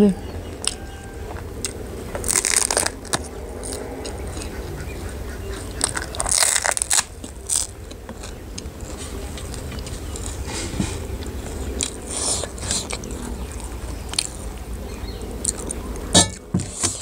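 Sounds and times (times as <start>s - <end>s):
crunching bites into crisp chip: 0.6s - 4.5s, 5.8s - 8.4s.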